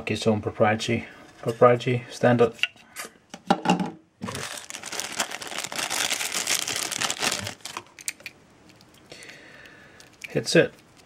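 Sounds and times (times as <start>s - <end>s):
plastic packaging crinkling: 4.2s - 9.0s, 10.0s - 11.0s.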